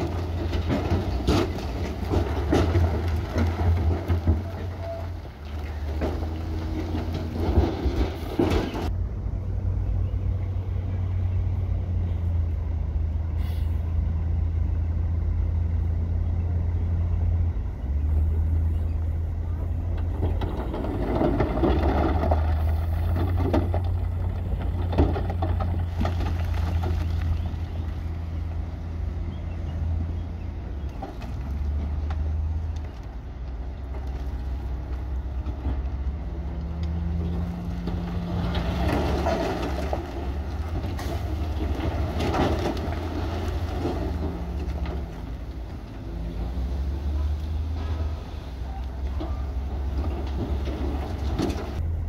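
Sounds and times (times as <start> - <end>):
machinery clatter: 0.0 - 8.9, 19.6 - 27.9
diesel machinery droning: 0.0 - 52.0.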